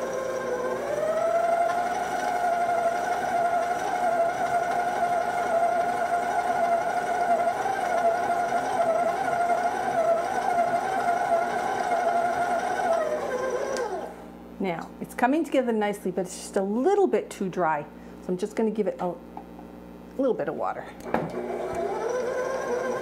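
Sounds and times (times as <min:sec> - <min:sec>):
stand mixer motor running: 0:00.0 - 0:14.2, 0:21.0 - 0:23.0.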